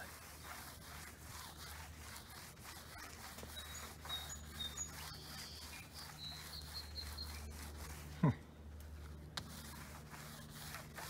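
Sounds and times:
mitt rubbing on wet car paint: 0.0s - 11.0s.

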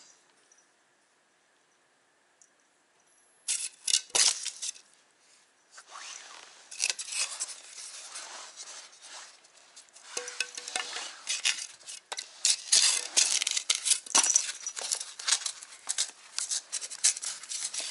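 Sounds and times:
styrofoam scraping on concrete: 3.5s - 4.8s, 5.8s - 17.9s.

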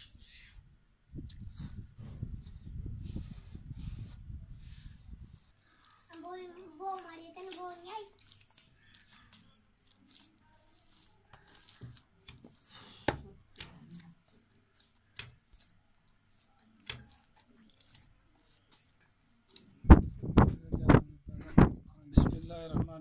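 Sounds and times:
dough squishing and tearing: 5.5s - 20.2s.

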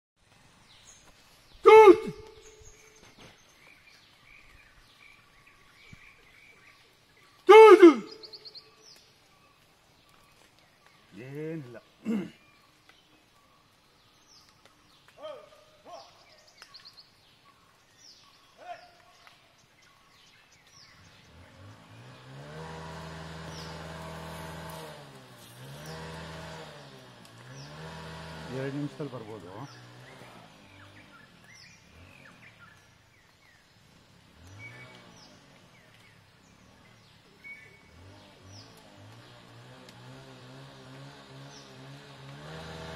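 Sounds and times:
bird chirps: 0.6s - 11.2s, 34.4s - 38.9s
elephant trumpeting: 1.6s - 2.6s, 7.5s - 8.3s
vehicle engine starting and running: 20.8s - 42.9s.

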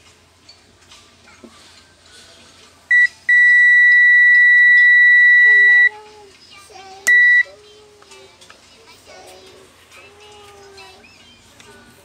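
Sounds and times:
multimeter continuity beeps: 2.9s - 5.9s, 7.1s - 7.5s.

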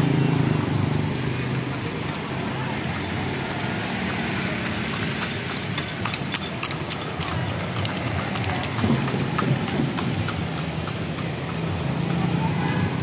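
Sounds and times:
horse hooves clip-clopping on pavement: 0.0s - 13.0s
motorbike engines humming: 0.0s - 13.0s.

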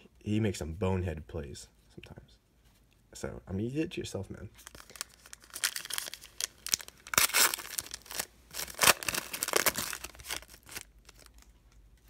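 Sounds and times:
wrapper tearing and crinkling: 4.6s - 11.5s.

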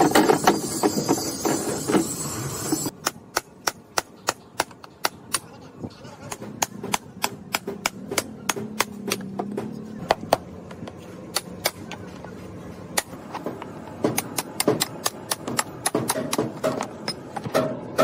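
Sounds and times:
hammer and chisel knocking: 13.0s - 18.0s.

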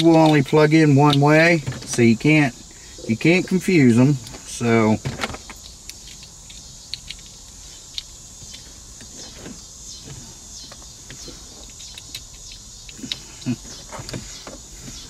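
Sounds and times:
steady background hum: 0.0s - 15.0s
plastic connectors clicking: 5.5s - 8.6s.

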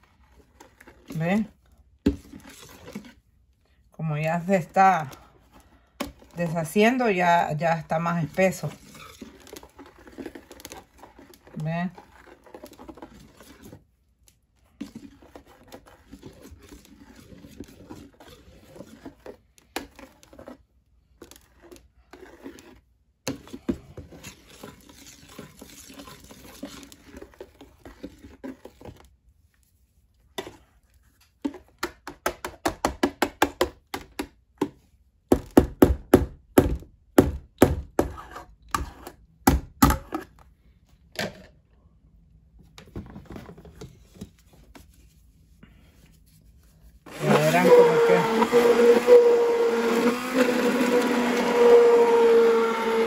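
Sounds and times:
whisk beating soap in plastic bowl: 0.0s - 34.9s, 45.9s - 53.0s.

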